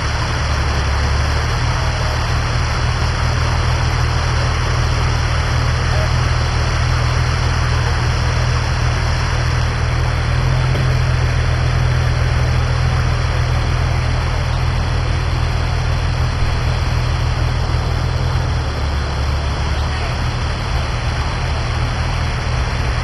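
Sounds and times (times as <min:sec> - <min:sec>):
vehicle engine idling: 0:00.0 - 0:23.0.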